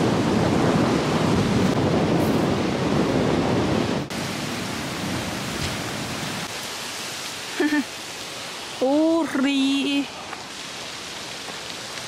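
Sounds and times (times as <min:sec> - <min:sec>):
strong wind on microphone: 0:00.0 - 0:06.5.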